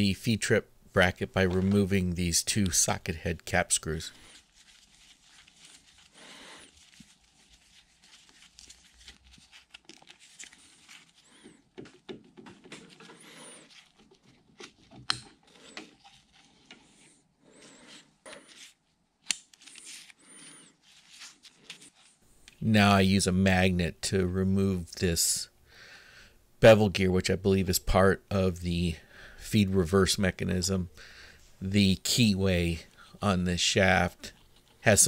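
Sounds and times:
gloved hands rustling: 0:01.3 - 0:22.6.

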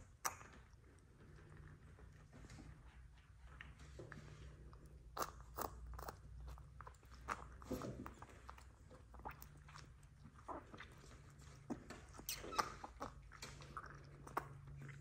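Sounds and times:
puppy sucking and smacking: 0:00.0 - 0:15.0.

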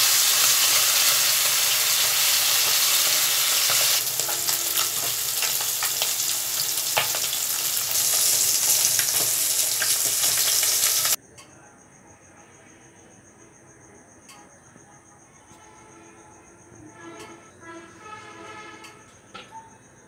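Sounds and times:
fish sizzling in hot oil: 0:00.0 - 0:11.2
crickets chirping: 0:00.0 - 0:20.0.

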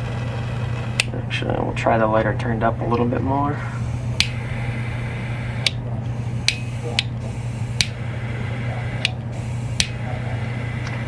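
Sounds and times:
torch lighter igniter clicking: 0:00.9 - 0:01.1, 0:04.2 - 0:04.5, 0:05.5 - 0:05.8, 0:06.4 - 0:08.0, 0:09.0 - 0:10.0.

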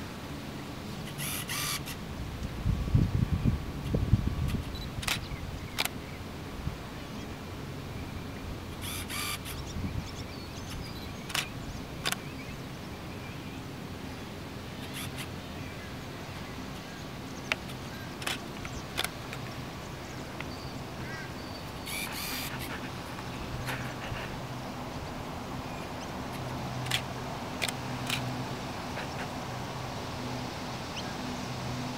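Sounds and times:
steady low hum: 0:00.0 - 0:31.9
sharp clicks: 0:04.5 - 0:06.0, 0:11.3 - 0:12.2, 0:17.4 - 0:19.5, 0:26.3 - 0:28.3.

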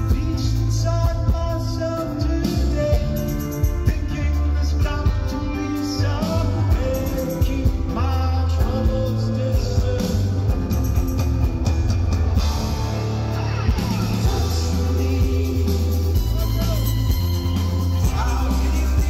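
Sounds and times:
man singing: 0:00.0 - 0:10.8, 0:13.2 - 0:19.0
heavy bass and drums: 0:00.0 - 0:19.0.

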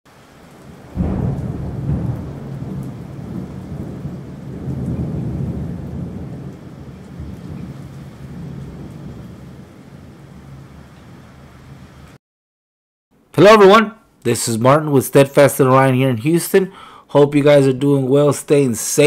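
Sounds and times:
thunder clap and rumble: 0:00.4 - 0:12.2.

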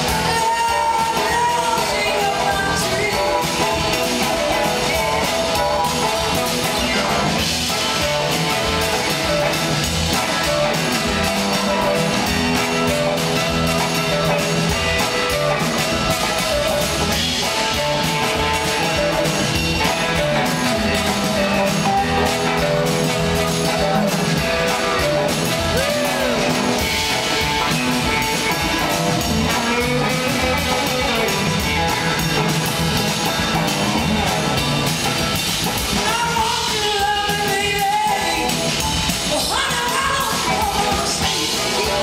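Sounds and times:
bass: 0:00.0 - 0:42.0
drums: 0:00.0 - 0:42.0
electric guitars: 0:00.0 - 0:42.0
horn section: 0:00.1 - 0:32.6.

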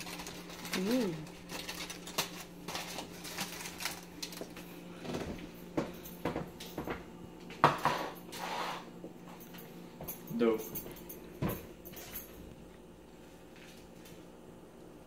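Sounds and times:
items knocking on countertop: 0:05.1 - 0:08.2.

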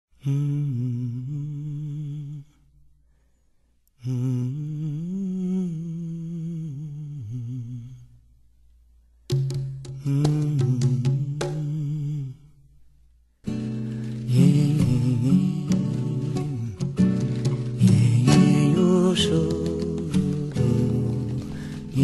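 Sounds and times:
person humming a melody: 0:04.0 - 0:08.1, 0:09.8 - 0:12.4, 0:14.2 - 0:22.0.

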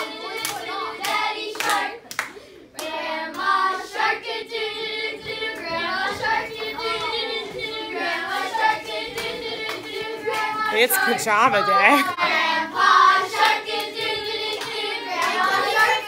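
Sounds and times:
hand claps: 0:00.0 - 0:03.5, 0:13.3 - 0:16.0
children singing together: 0:00.0 - 0:11.2, 0:11.9 - 0:16.0.

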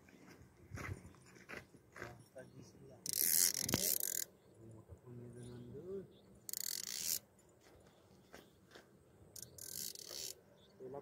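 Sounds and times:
fishing reel whirring: 0:03.1 - 0:04.3, 0:06.5 - 0:07.2, 0:09.4 - 0:10.4.

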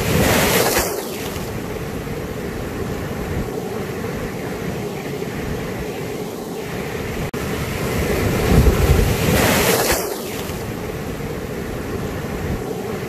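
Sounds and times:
surf washing over rocks: 0:00.0 - 0:13.0
wave breaking: 0:00.0 - 0:13.0.

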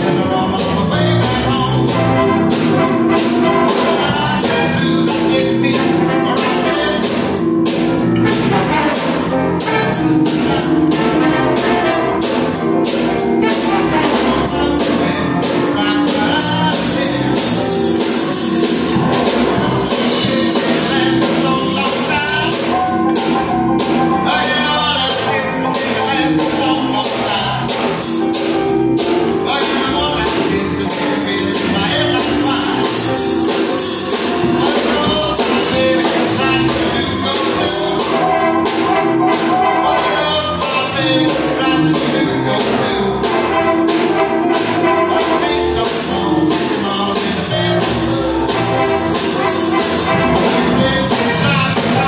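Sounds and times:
drum kit: 0:00.0 - 0:52.0
electric bass: 0:00.0 - 0:52.0
man singing: 0:00.0 - 0:52.0
piano: 0:00.0 - 0:52.0
saxophone and trumpet horn section: 0:00.0 - 0:52.0.

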